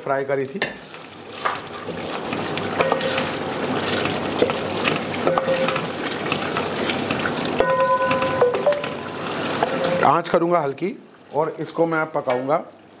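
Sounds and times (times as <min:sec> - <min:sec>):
gravy sizzling in a metal pan: 0:00.1 - 0:12.7.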